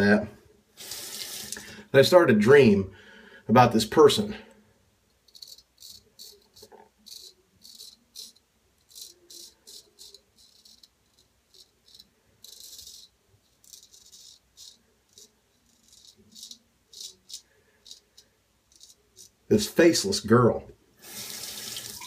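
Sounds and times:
razor scraping stubble: 5.3 - 19.4.

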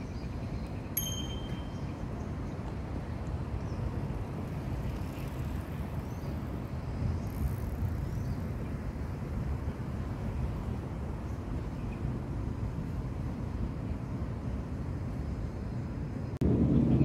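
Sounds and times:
steady low rumble: 0.0 - 17.0
faint high chirps: 0.6 - 2.3.

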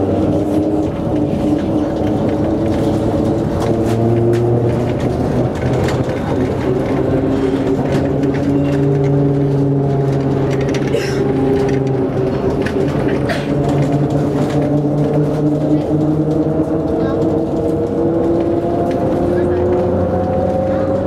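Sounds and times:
rolling rumble: 0.0 - 21.0
tram electric hum: 0.0 - 21.0.

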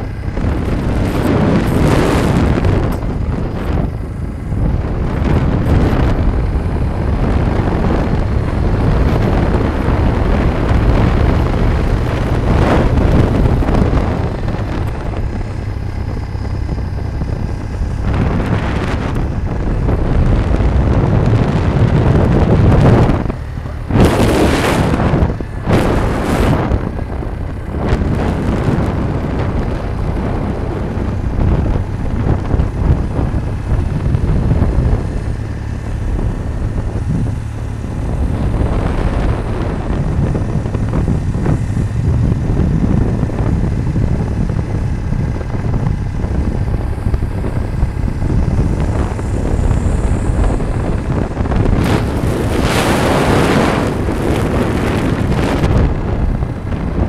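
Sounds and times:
vehicle rumble on road: 0.0 - 57.0
wind buffeting microphone: 0.0 - 57.0.

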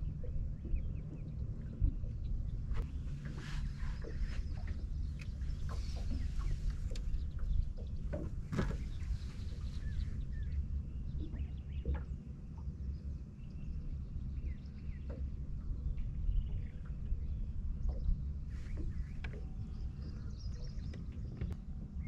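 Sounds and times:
wind rumble on microphone: 0.0 - 22.0
faint clicks: 1.1 - 10.0.

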